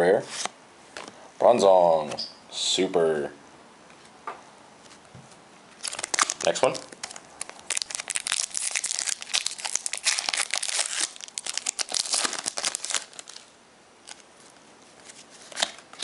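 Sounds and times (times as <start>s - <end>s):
foil wrapper tearing and crinkling: 5.8s - 14.3s.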